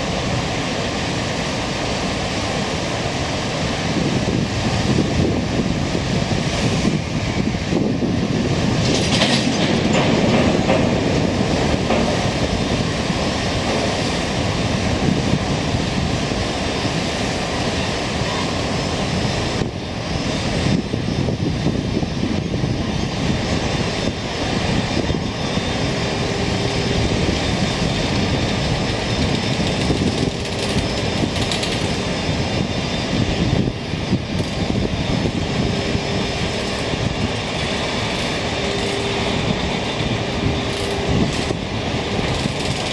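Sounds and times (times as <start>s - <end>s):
steel wheels on rails: 8.6s - 18.7s, 25.7s - 32.8s, 34.2s - 42.9s.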